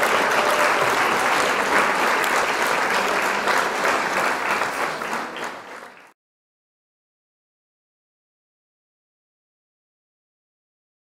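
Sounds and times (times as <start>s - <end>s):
crowd applauding: 0.0s - 6.2s.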